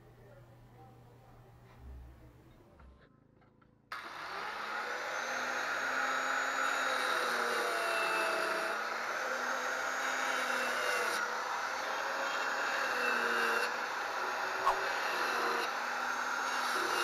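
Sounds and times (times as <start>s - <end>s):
electric saw cutting wood: 3.9s - 17.0s.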